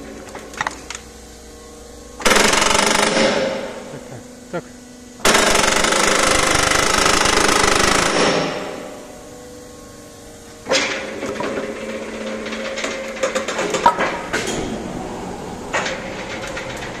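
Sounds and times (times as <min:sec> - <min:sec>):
machine running with faint hum: 0:00.0 - 0:17.0
hydraulic rock drill hammering: 0:02.2 - 0:04.2, 0:05.2 - 0:09.1.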